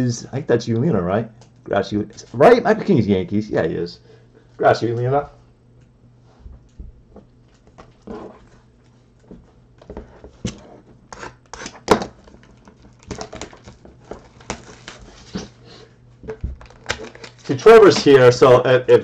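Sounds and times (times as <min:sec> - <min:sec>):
cards and plastic sleeves rustling: 0:11.6 - 0:15.6, 0:16.2 - 0:18.5.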